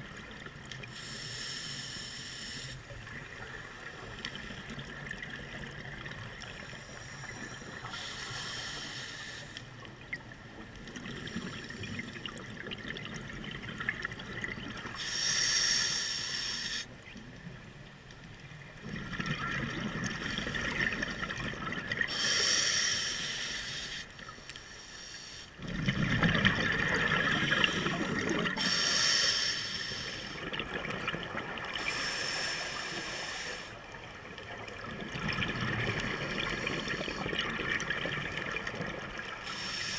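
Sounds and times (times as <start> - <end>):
regulator inhale hiss: 0.8 - 2.9, 6.6 - 9.8, 14.9 - 17.0, 22.1 - 25.6, 27.2 - 30.4, 31.8 - 33.9, 35.9 - 37.4, 39.4 - 39.9
exhaled air bubbling: 9.8 - 15.3, 18.6 - 22.6, 25.6 - 33.2, 33.8 - 39.9.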